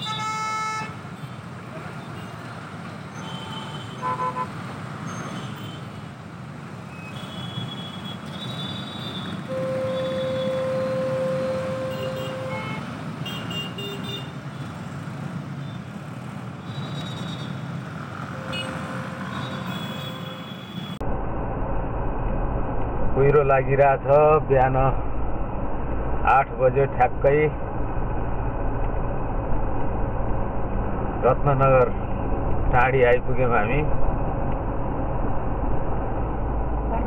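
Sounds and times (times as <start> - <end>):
vehicle horns: 0.0 - 1.4, 3.1 - 5.9, 7.0 - 14.7, 18.3 - 21.0
highway road noise: 0.0 - 37.0
deep road rumble: 0.8 - 37.0.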